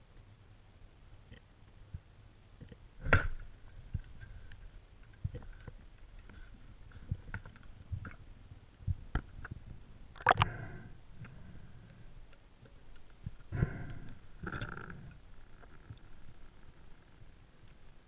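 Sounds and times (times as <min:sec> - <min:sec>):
underwater clicks and knocks: 0:02.6 - 0:06.4, 0:07.0 - 0:08.2, 0:08.9 - 0:10.6, 0:12.9 - 0:16.1.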